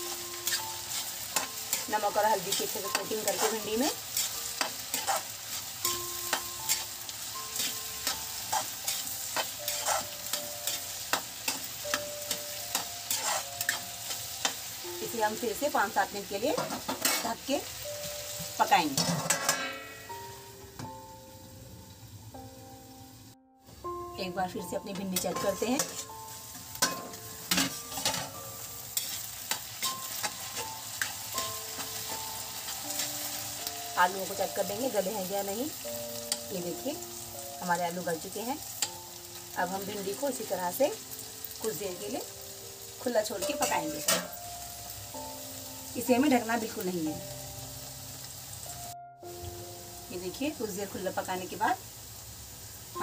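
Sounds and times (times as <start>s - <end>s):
frying sizzle in oil: 0.0s - 53.0s
spoon scraping steel pan: 7.6s - 11.6s, 12.3s - 13.8s, 25.2s - 26.1s.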